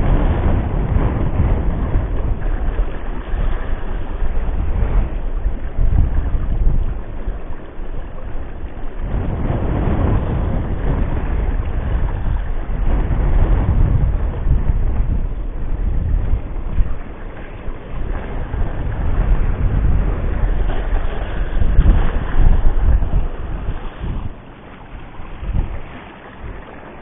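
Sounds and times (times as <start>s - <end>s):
sea waves on shore: 0.0s - 27.0s
wind buffeting microphone: 0.0s - 27.0s.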